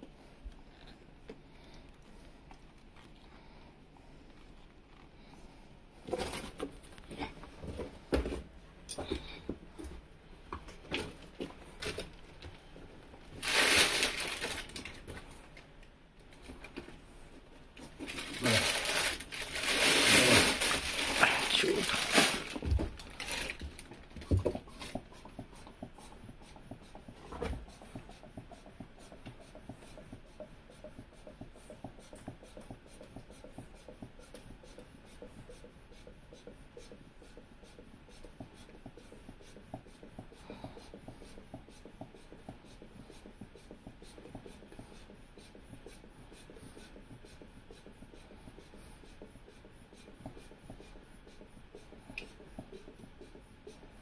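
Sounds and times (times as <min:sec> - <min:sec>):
rubber tubing rubbing and clicking: 0:17.8 - 0:54.0.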